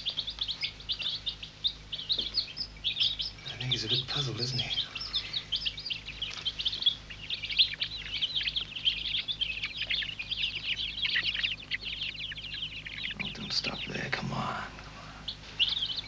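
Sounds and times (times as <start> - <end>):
chick peeping: 0.0 - 16.0.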